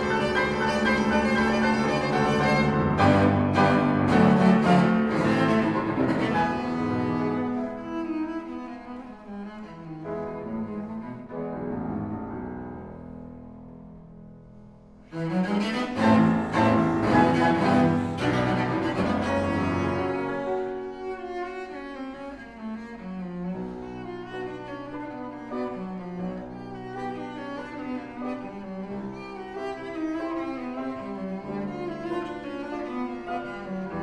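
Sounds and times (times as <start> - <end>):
piano chords: 0.0 - 9.0, 9.6 - 21.9
cello playing: 0.0 - 13.1, 15.0 - 34.0.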